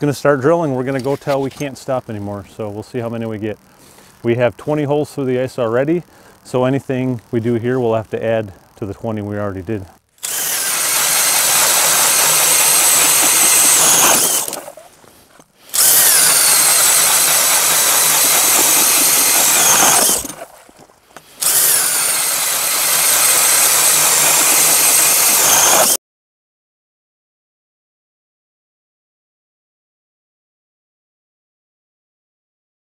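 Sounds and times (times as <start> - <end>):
cordless drill boring through ice: 10.2 - 14.9, 15.6 - 20.5, 21.2 - 26.0.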